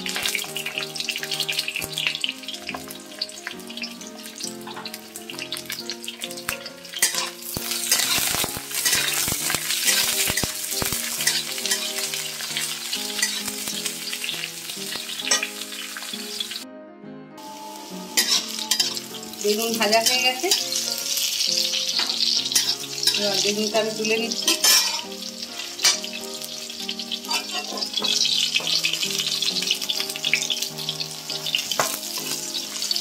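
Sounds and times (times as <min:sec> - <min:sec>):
vegetables sizzling in hot oil: 0:00.0 - 0:16.6, 0:17.4 - 0:33.0
metal spatula scraping a wok: 0:06.9 - 0:14.2, 0:14.9 - 0:15.6, 0:18.1 - 0:19.2, 0:22.0 - 0:23.4, 0:24.4 - 0:25.1, 0:25.8 - 0:26.2, 0:27.2 - 0:29.3.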